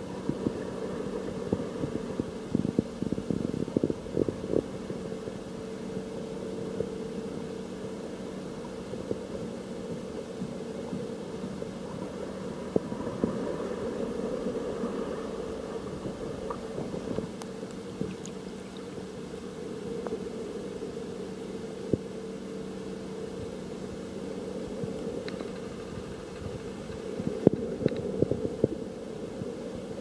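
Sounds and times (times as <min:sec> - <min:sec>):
low mechanical drone underwater: 0:00.0 - 0:30.0
clicks and crackles: 0:16.5 - 0:18.9, 0:25.0 - 0:28.1.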